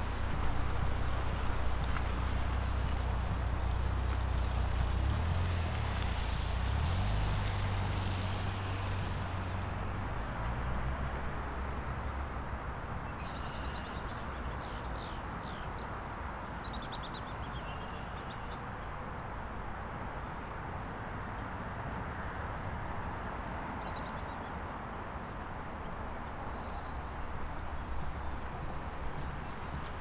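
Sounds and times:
low engine hum: 0:00.0 - 0:14.9, 0:25.3 - 0:30.0
distant traffic noise: 0:00.0 - 0:30.0
songbird chirping: 0:13.0 - 0:18.7.

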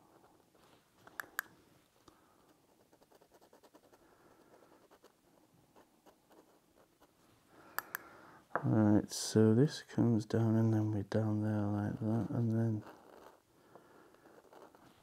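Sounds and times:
pen nib scratching paper: 0:02.6 - 0:07.2, 0:12.0 - 0:15.0.

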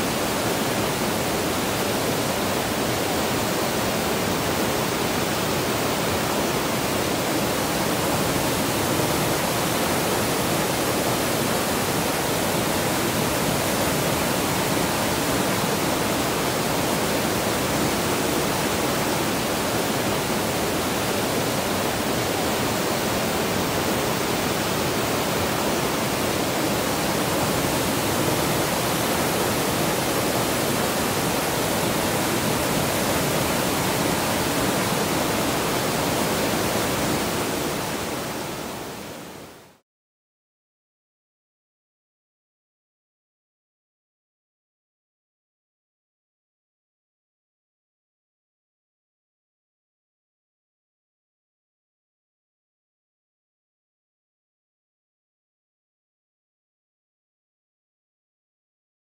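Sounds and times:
water rushing over rocks: 0:00.0 - 0:39.2.

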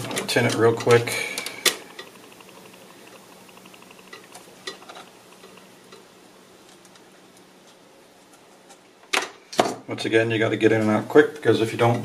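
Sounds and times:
solder sizzling and crackling: 0:00.0 - 0:09.5.

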